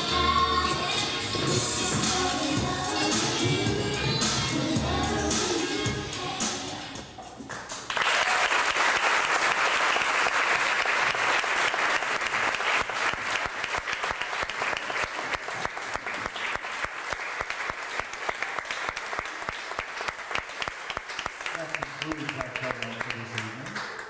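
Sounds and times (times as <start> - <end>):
audience applause: 7.8 - 24.0.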